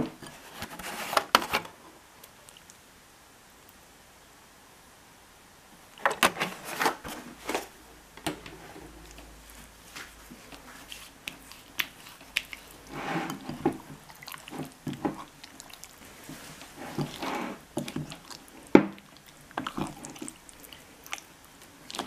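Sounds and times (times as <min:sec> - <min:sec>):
wet squishing of mixing: 0:08.8 - 0:22.0.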